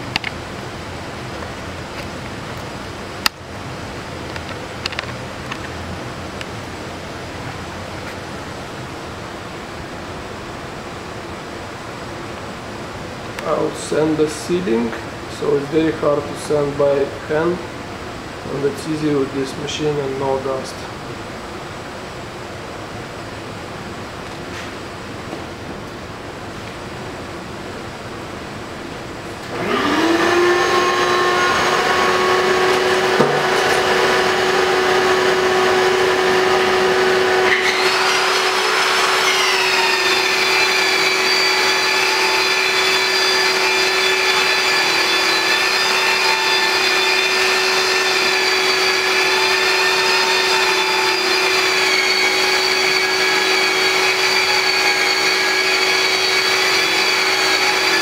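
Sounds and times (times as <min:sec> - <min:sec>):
drywall sander whine: 0:29.2 - 0:58.0
dust extraction vacuum running: 0:29.4 - 0:58.0.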